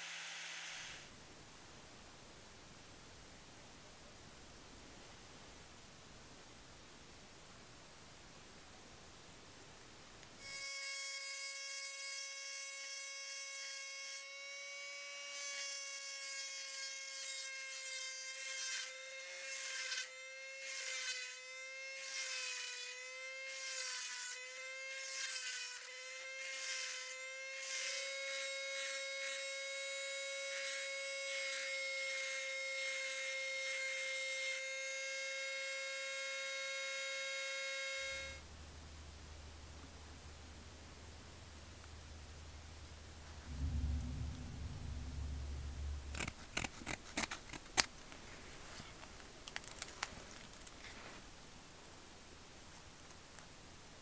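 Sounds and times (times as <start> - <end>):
rotary tool whining: 0.0 - 1.1.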